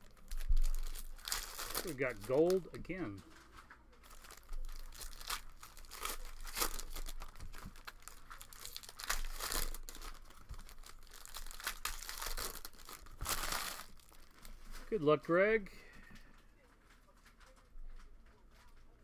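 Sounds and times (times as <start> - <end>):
foil wrapper tearing and crinkling: 0.0 - 14.9.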